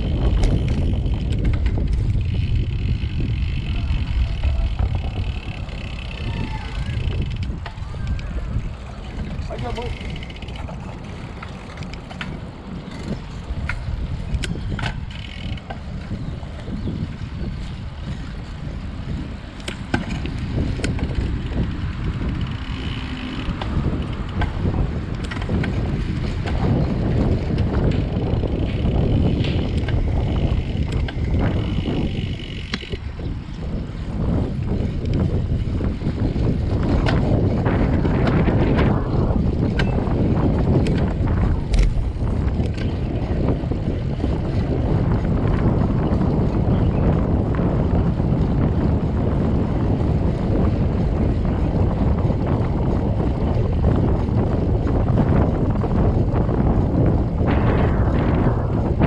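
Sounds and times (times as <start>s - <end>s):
small clicks and rattles: 0.0s - 8.7s, 9.4s - 16.1s
tyre and road noise: 0.0s - 59.0s
wind buffeting microphone: 0.0s - 59.0s.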